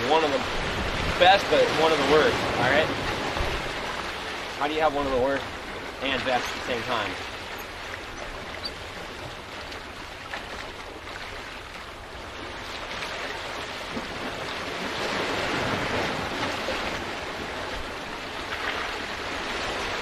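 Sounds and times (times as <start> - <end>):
wind on microphone: 0.0 - 4.1
surf splashing against rocks: 0.0 - 20.0.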